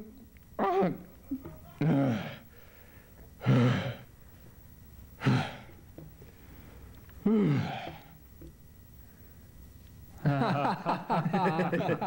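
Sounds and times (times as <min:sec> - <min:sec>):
man groaning with effort: 0:07.2 - 0:08.0.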